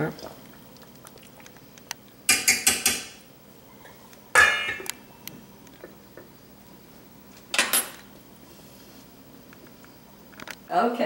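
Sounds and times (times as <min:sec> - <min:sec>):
cookware clanking: 0:04.3 - 0:04.9, 0:07.5 - 0:08.1.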